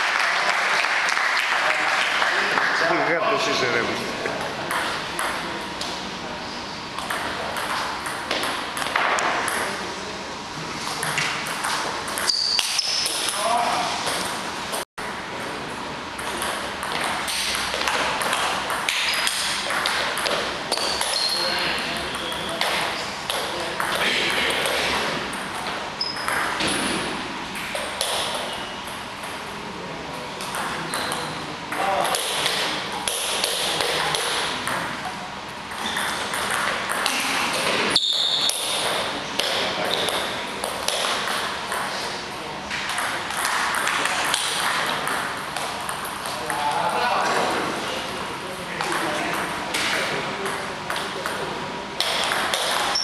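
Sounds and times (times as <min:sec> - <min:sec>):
table tennis ball hits: 0:04.4 - 0:05.4, 0:07.0 - 0:09.7, 0:11.0 - 0:14.8, 0:16.2 - 0:21.4, 0:22.1 - 0:29.4, 0:30.4 - 0:34.9, 0:35.7 - 0:42.0, 0:42.7 - 0:46.7, 0:52.0 - 0:53.0.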